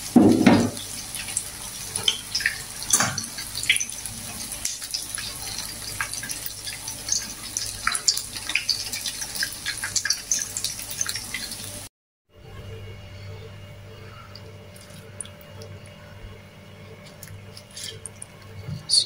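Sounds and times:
food deep-frying in hot oil: 0.0s - 11.9s.

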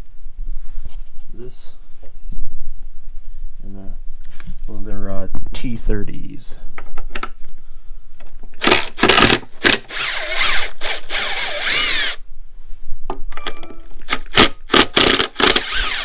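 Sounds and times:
impact driver motor: 8.6s - 12.2s, 14.1s - 16.0s.

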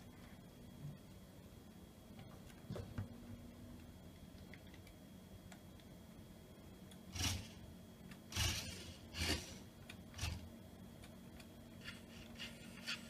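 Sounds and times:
toy car motor and gears whirring: 7.1s - 7.6s, 8.3s - 10.5s, 11.8s - 13.0s.

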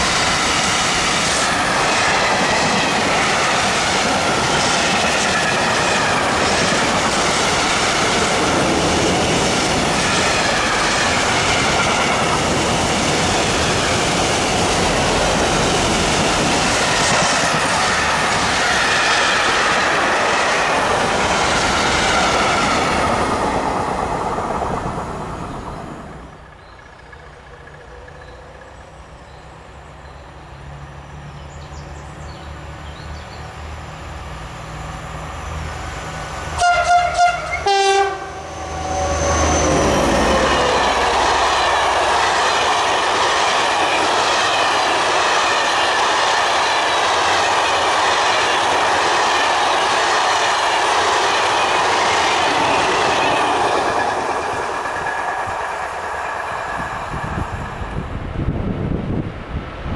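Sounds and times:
diesel locomotive engine rumble: 0.0s - 59.9s
train wheels rushing on rails: 0.0s - 59.9s
two-tone train horn blasts: 36.6s - 39.6s.

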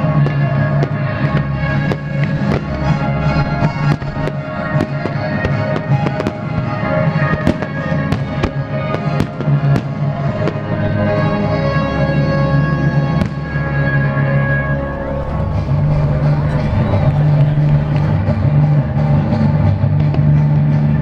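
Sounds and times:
fireworks bursting with sharp bangs: 0.0s - 14.6s
loud music with sustained tones: 0.0s - 21.0s.

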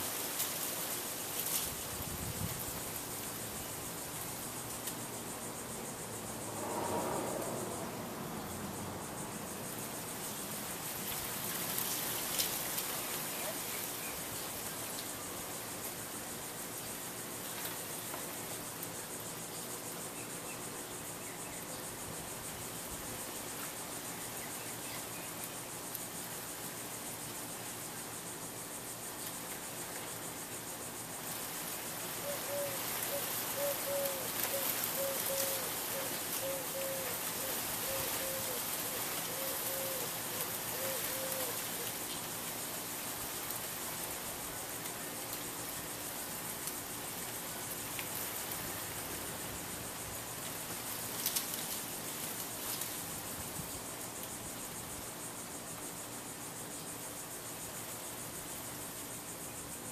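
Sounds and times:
ceiling fans airy hiss: 0.0s - 59.9s
ceiling fan whoosh: 6.0s - 9.5s.

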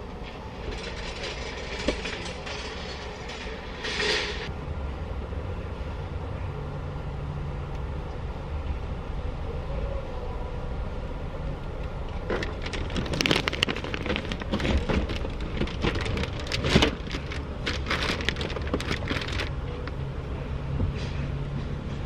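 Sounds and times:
low car cabin rumble: 11.8s - 21.0s
plastic wrapping crinkling: 12.3s - 19.9s.

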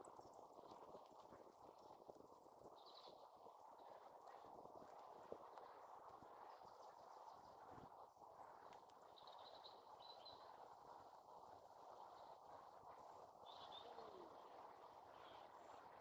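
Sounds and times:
low steady background hiss: 0.0s - 16.0s
faint bird chirps: 9.1s - 10.6s, 13.4s - 15.5s.

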